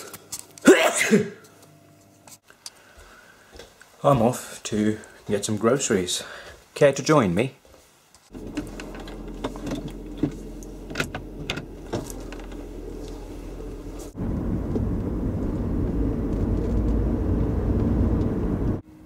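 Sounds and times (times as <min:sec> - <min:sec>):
car rumbling while driving: 0:08.3 - 0:18.8
steady low hum: 0:08.3 - 0:19.0.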